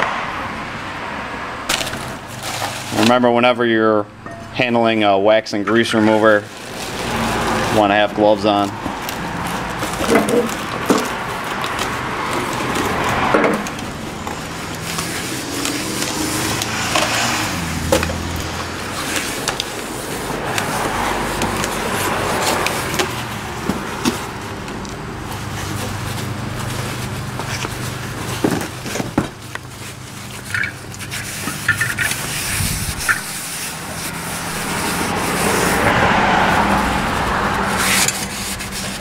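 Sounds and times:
cloth rag rubbing metal: 0:29.9 - 0:36.0, 0:36.8 - 0:39.0.

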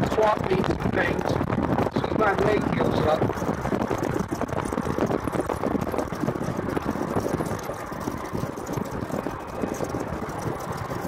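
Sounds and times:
golf cart driving: 0:00.0 - 0:11.0.

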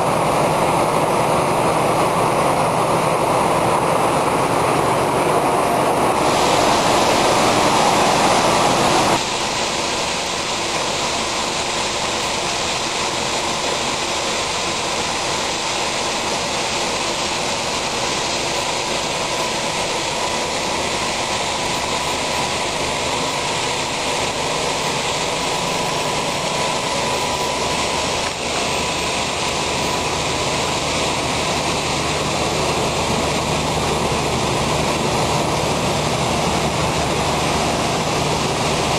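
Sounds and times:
faint machine whine: 0:00.0 - 0:12.7
heavy farm machinery running: 0:00.0 - 0:38.9.

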